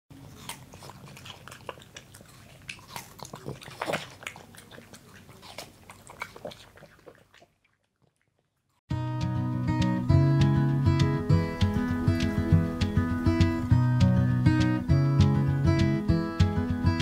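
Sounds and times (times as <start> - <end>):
dog licking and crunching watermelon: 0.1 - 8.8.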